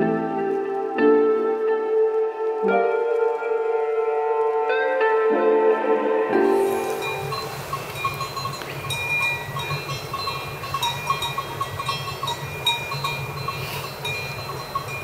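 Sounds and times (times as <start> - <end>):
small bells clinking: 6.6 - 15.0.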